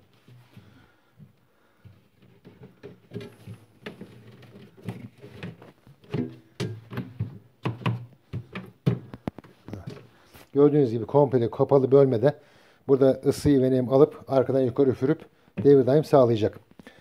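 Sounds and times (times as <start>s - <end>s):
panel knocking and clattering: 2.5s - 10.1s.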